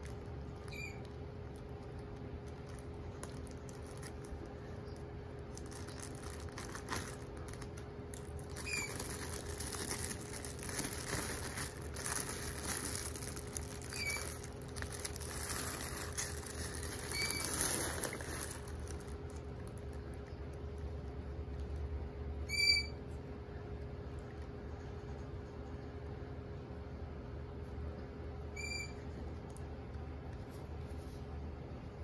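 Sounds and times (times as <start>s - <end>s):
plastic packaging crinkling: 0.0s - 20.8s.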